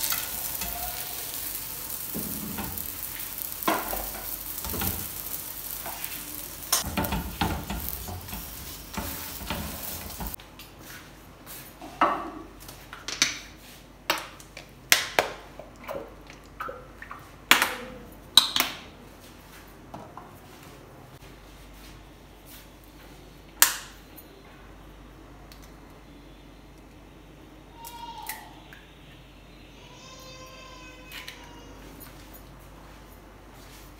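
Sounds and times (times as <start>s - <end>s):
flatbread sizzling on hot pan: 0.0s - 10.4s.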